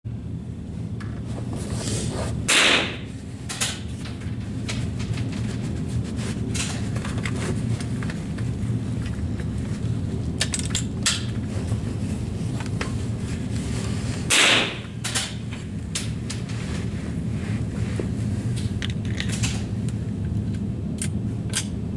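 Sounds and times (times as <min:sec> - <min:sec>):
rifle shot: 0:02.5 - 0:03.0, 0:14.3 - 0:14.8.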